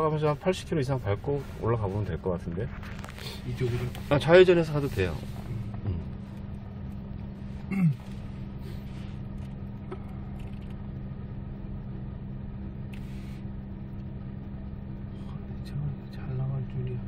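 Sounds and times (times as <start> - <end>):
car engine idling: 0.0 - 17.0
person humming: 5.8 - 6.2.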